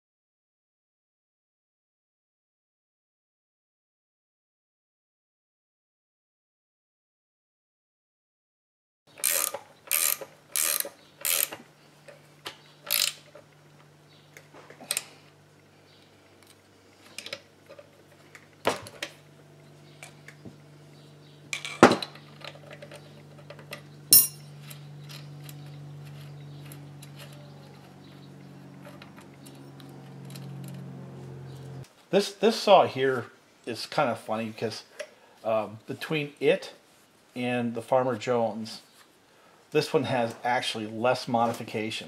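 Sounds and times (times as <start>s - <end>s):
low steady hum: 9.2s - 38.7s.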